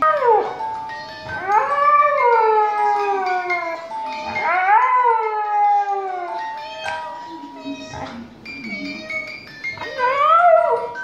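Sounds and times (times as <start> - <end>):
music: 0.0 - 11.0
dog howling: 1.4 - 6.4, 9.9 - 11.0.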